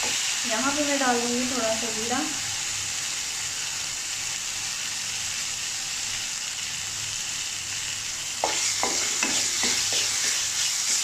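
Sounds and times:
seeds sizzling in hot oil: 0.0s - 11.0s
wooden spatula scraping pan: 8.4s - 10.7s.

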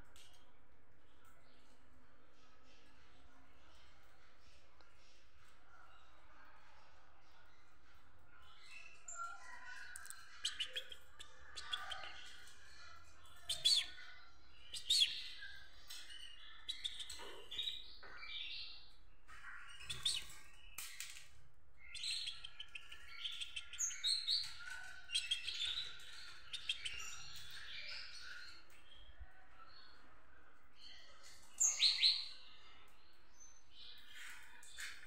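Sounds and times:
finch twittering: 16.0s - 18.2s, 21.8s - 28.4s.

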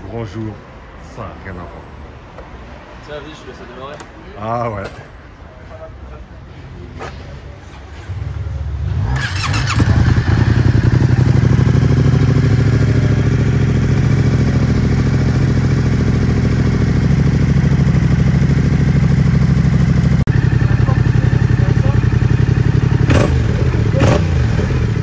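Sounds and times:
motorcycle engine idling: 9.2s - 25.0s.

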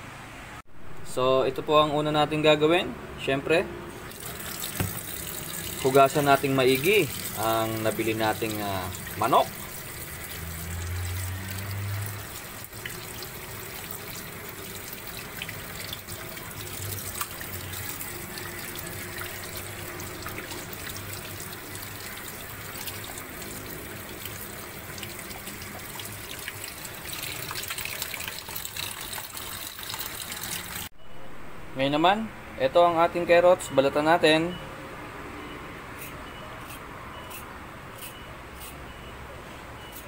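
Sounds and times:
tap water splashing in sink: 4.1s - 30.8s.

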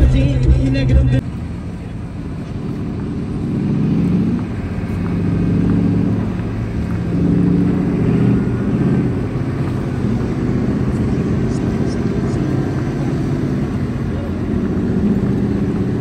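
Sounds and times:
off-road vehicle engine revving: 0.0s - 16.0s.

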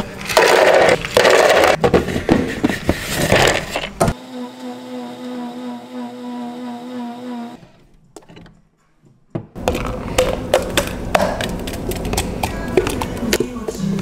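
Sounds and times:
blender whining: 4.1s - 7.8s.

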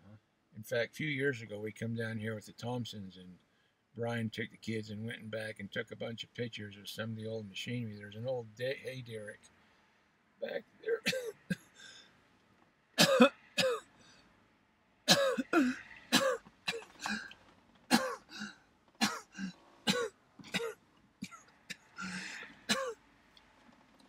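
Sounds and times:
person coughing: 10.9s - 11.7s, 13.0s - 13.8s, 15.1s - 17.3s, 17.9s - 23.0s.

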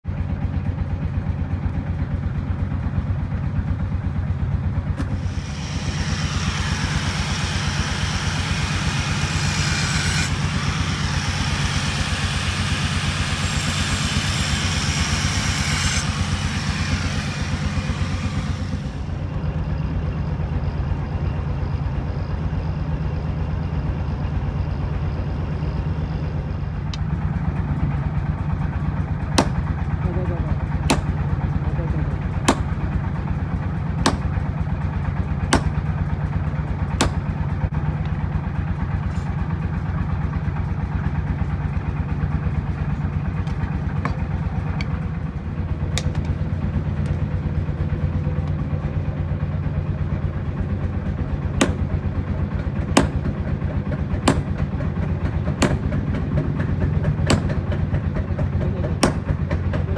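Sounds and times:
low mechanical drone: 0.0s - 59.9s
angle grinder cutting steel: 5.2s - 19.1s.

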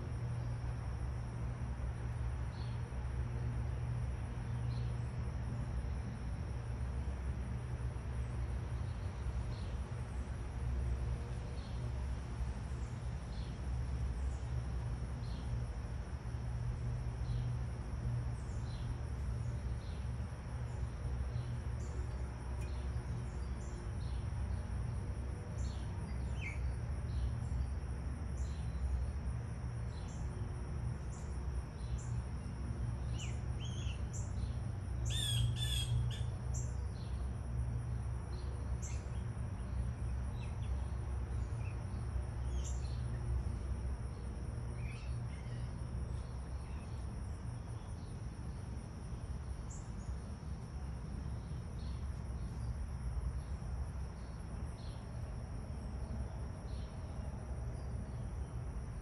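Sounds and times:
insects trilling: 0.0s - 59.0s
bird chirps: 35.0s - 36.3s.

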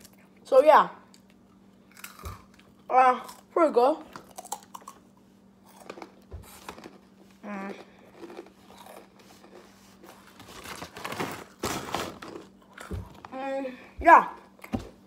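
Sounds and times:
paper bag crinkling: 10.0s - 12.6s.

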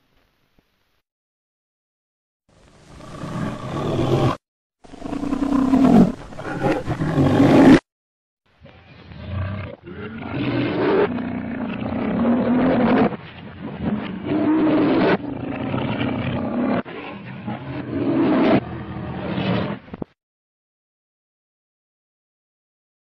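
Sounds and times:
lion roaring and growling: 2.9s - 7.8s, 8.9s - 20.0s.

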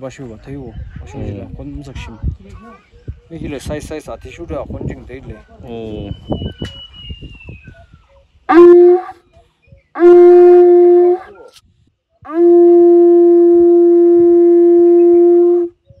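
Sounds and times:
animal-horn trumpet blasts: 8.5s - 9.2s, 10.0s - 11.4s, 12.3s - 15.7s.

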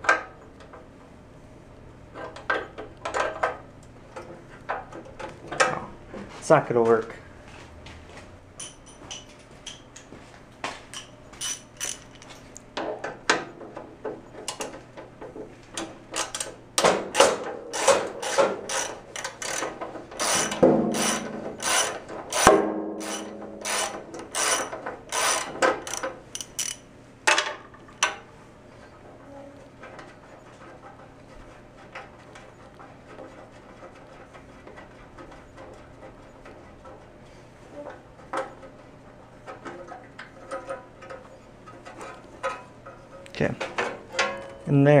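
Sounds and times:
hand tools clicking on metal: 10.9s - 12.4s, 15.8s - 26.8s
sharp ringing clank: 22.4s - 24.6s.

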